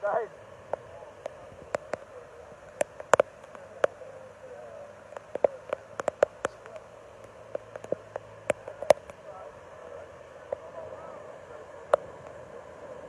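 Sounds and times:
rushing floodwater: 0.0 - 13.0
sharp clicks and taps: 2.7 - 4.0, 5.1 - 9.2.

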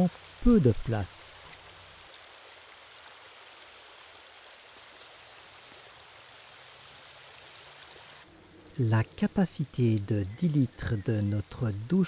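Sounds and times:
river rushing over pebbles: 0.0 - 8.3.

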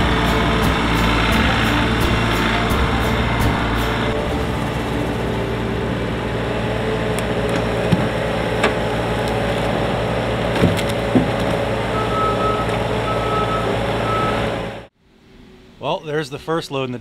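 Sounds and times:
diesel engine running: 0.0 - 14.9
wood knocking on wood: 7.9 - 8.8, 10.6 - 11.7
reversing alarm beeps: 11.9 - 14.5.

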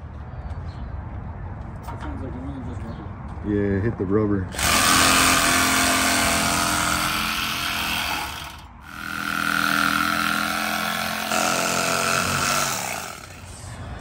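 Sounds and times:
power tool motor whine: 4.6 - 13.4.

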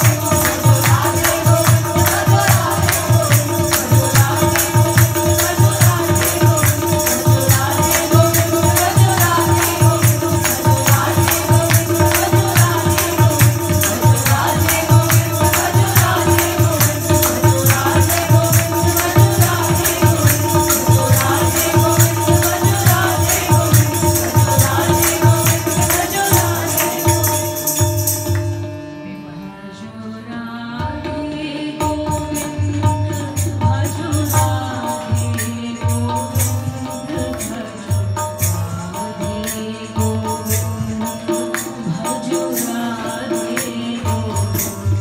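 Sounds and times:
group devotional singing: 0.0 - 28.0, 30.4 - 38.0, 38.8 - 45.0
crisp fast rhythmic beat: 0.0 - 28.3.

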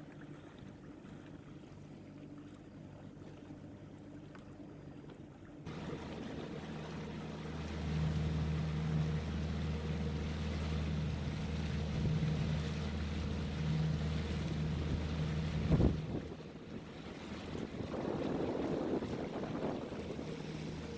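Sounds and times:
motorboat engine droning: 0.0 - 20.9
wind: 0.0 - 20.9
water rushing: 5.6 - 20.9.

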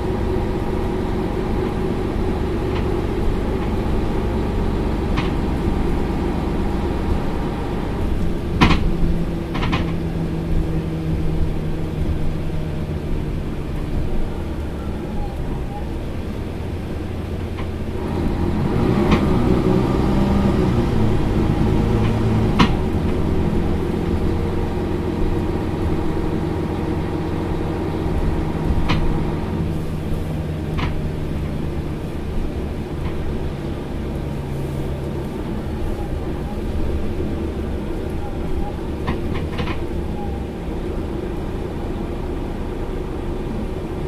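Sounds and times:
bus engine running: 0.0 - 44.0
sharp clicks and knocks: 5.1 - 5.6, 8.2 - 10.0, 19.0 - 19.4, 21.8 - 23.2, 28.6 - 29.2, 30.7 - 31.1, 39.0 - 40.0.

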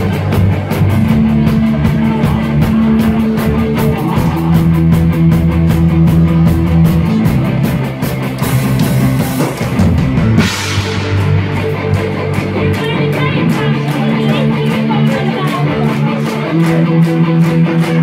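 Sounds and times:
folk-punk band playing: 0.0 - 18.0
cymbal crash: 10.4 - 11.9.

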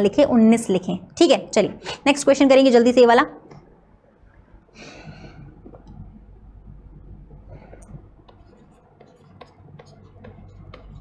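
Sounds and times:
low hum: 3.4 - 11.0
stylus scratching on tablet: 5.9 - 11.0.

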